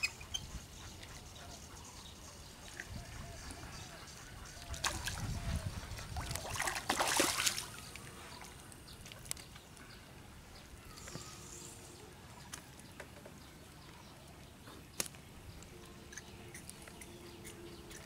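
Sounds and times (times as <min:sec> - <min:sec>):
fish thrashing and splashing: 0:06.2 - 0:07.8.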